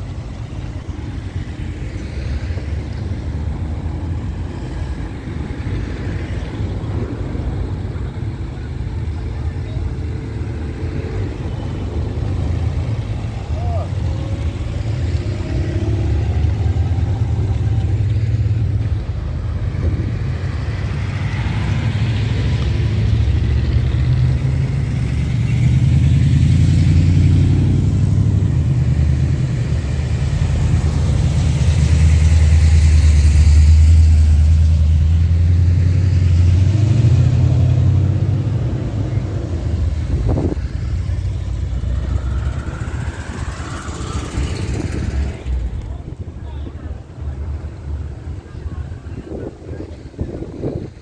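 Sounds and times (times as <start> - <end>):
cars driving past rumbling: 0.0 - 51.0.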